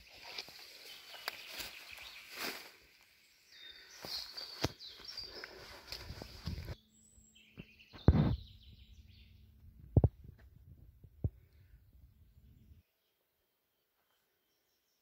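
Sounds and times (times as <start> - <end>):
bird chirps: 0.6 - 2.6, 3.2 - 9.6.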